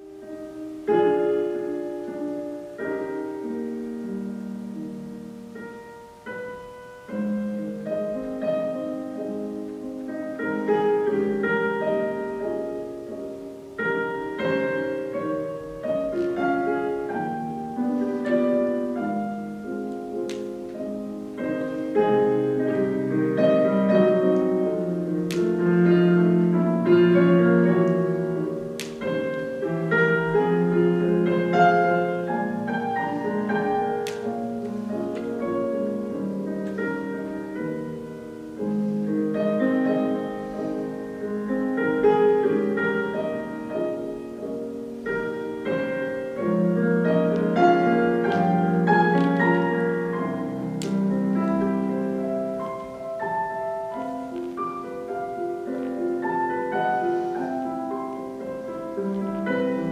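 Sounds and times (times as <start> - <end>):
solo piano slow chords: 0.0 - 59.9.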